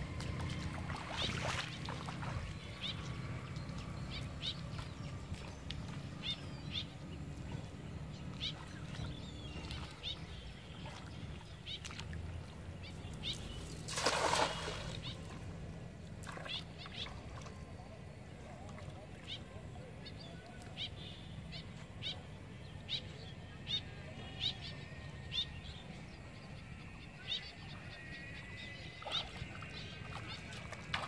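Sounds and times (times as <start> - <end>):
birds chirping: 0.0 - 31.0
cast net splashing into river: 0.9 - 2.3, 13.7 - 15.2.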